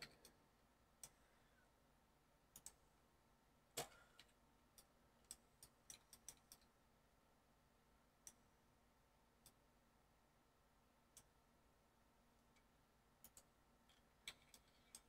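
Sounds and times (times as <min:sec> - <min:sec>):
computer keyboard and mouse clicks: 0:00.0 - 0:00.4, 0:02.5 - 0:02.8, 0:03.8 - 0:06.7, 0:12.4 - 0:15.0.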